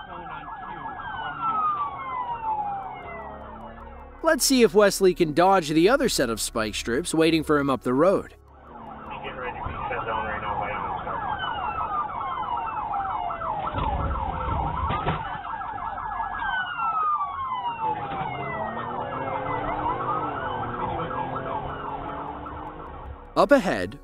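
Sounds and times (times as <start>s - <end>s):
police siren fast yelp: 0.0s - 4.2s, 8.6s - 23.3s
police siren slow wail: 0.0s - 6.8s, 8.4s - 23.4s.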